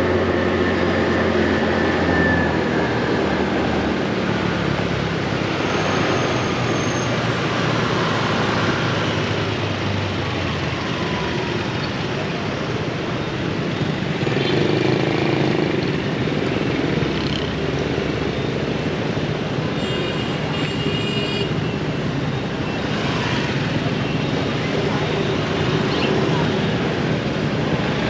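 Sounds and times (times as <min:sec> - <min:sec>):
motorbike engine and road noise: 0:00.0 - 0:28.0.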